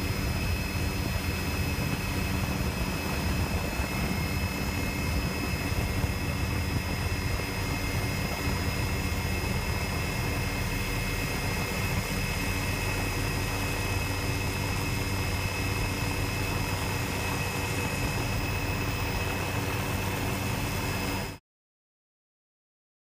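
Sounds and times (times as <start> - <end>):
helicopter engine and rotor drone: 0.0 - 21.4
turbine whine: 0.0 - 21.4.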